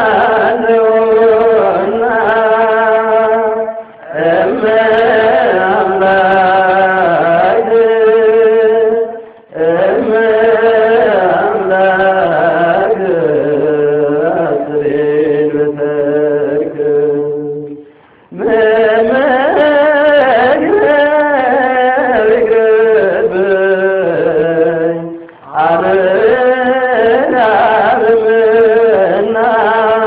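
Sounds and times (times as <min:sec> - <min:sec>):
person singing a hymn: 0:00.0 - 0:30.0.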